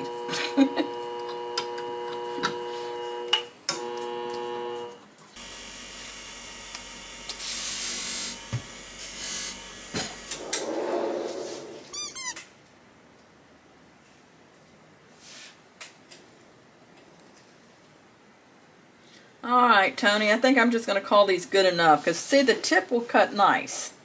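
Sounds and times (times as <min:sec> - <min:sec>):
sharpening machine humming: 0:00.0 - 0:10.7
short squeaky chirping: 0:11.8 - 0:12.5.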